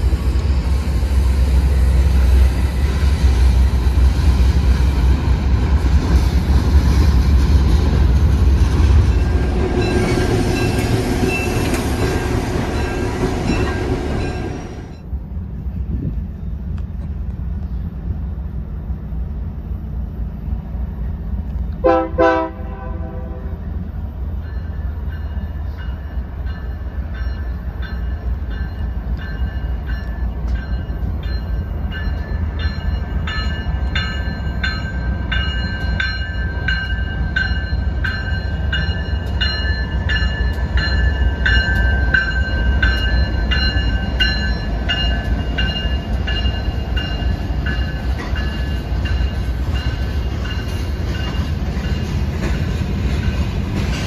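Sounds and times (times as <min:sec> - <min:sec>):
diesel locomotive rumble: 0:00.0 - 0:54.0
train wheels rumbling on rails: 0:00.0 - 0:54.0
train horn blast: 0:21.8 - 0:23.6
steady ringing tones: 0:24.3 - 0:53.6.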